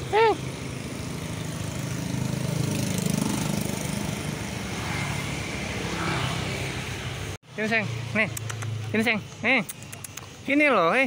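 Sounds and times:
vehicle engine running: 0.0 - 5.0.

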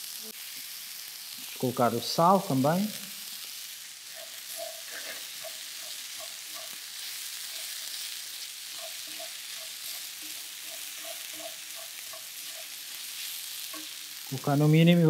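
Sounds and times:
food sizzling in a frying pan: 0.0 - 15.0
wooden spatula scraping: 4.1 - 14.4.

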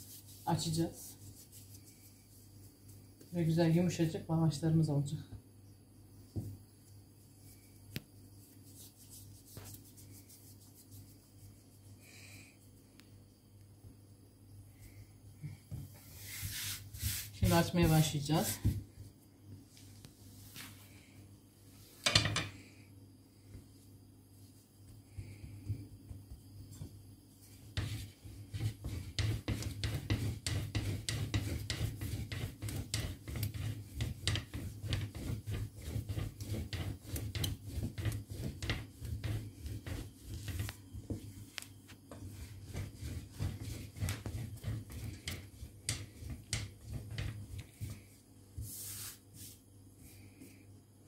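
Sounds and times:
rolling pin rolling over dough: 0.0 - 4.1, 8.4 - 11.8, 15.5 - 19.2, 24.4 - 49.6.

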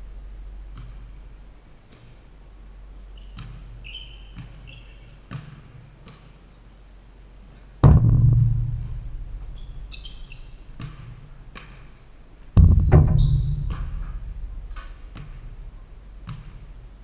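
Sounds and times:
sneaker squeaks: 3.1 - 6.3, 9.1 - 16.8
basketball bouncing on wooden floor: 3.3 - 6.3, 7.8 - 12.0, 12.6 - 17.0
ball hitting backboard and rim: 5.3 - 6.3, 7.8 - 16.9.

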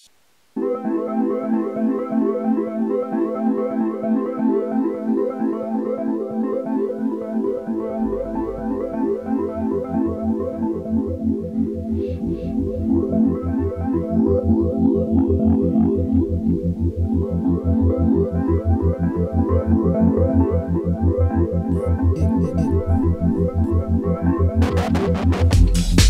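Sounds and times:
low pulsing bass beat: 21.7 - 26.0.

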